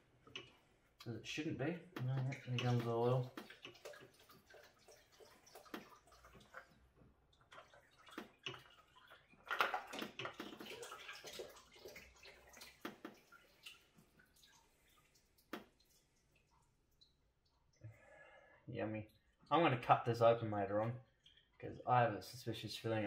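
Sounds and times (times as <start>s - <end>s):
oil splashing and dripping: 1.9s - 17.8s, 21.0s - 21.6s.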